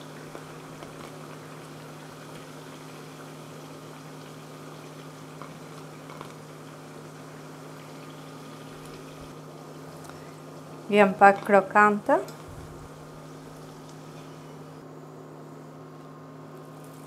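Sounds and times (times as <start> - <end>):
food sizzling in hot oil: 0.0 - 11.4
steady low hum: 0.0 - 17.0.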